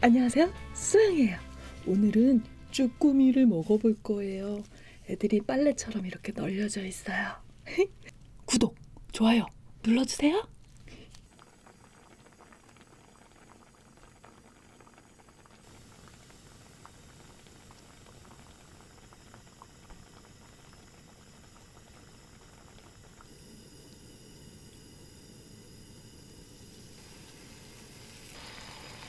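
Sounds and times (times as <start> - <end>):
water bubbling in a pan: 10.2 - 29.0.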